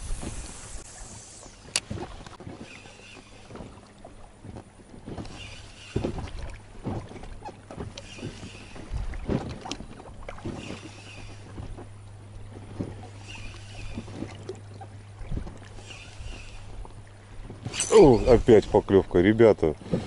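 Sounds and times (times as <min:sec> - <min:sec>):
water splashing: 0:00.0 - 0:19.1
steady low hum: 0:00.0 - 0:20.0
fishing reel winding: 0:15.8 - 0:16.7.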